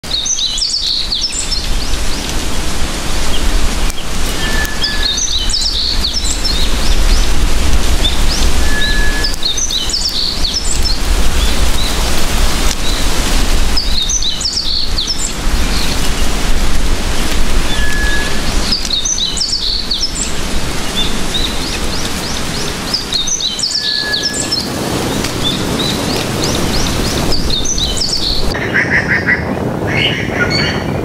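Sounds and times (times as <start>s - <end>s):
birds chirping: 0.0s - 31.0s
wind rushing: 0.0s - 31.0s.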